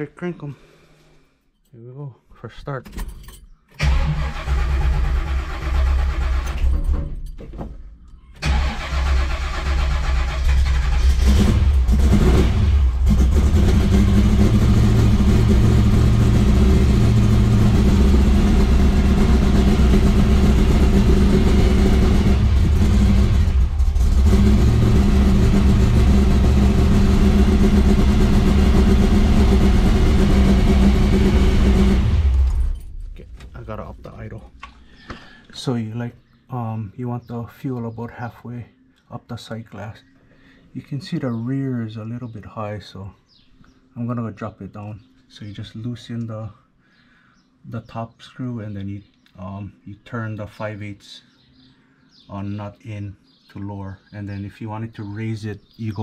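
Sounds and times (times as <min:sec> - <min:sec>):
car engine starting and running: 0:03.7 - 0:07.4, 0:08.4 - 0:34.9.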